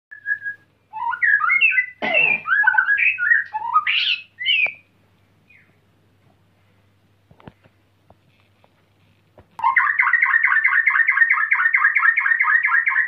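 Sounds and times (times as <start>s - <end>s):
bird singing whistled phrases: 0.1s - 4.9s, 5.5s - 5.8s, 9.6s - 13.0s.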